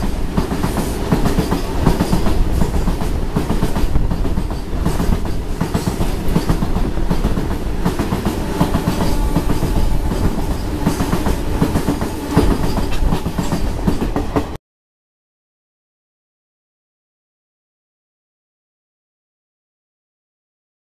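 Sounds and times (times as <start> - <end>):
freight train rumbling past: 0.0 - 14.6
wheels clacking over rail joints: 0.0 - 14.6.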